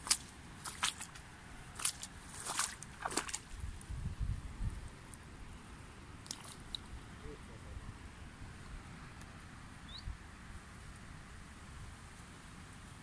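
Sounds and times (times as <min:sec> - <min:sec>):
footsteps through grass and reeds: 0:00.0 - 0:03.7
low rumble on microphone: 0:02.2 - 0:05.0.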